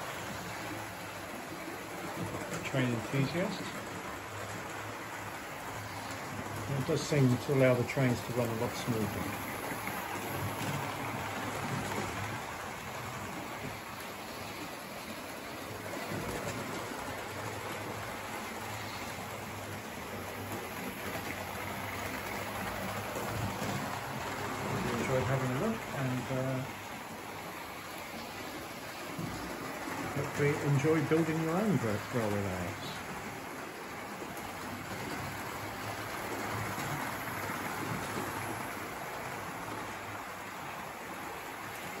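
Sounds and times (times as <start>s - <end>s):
model train rumbling on track: 0.0s - 26.8s, 28.8s - 42.0s
model train wheels on track: 6.5s - 10.3s, 30.0s - 33.2s.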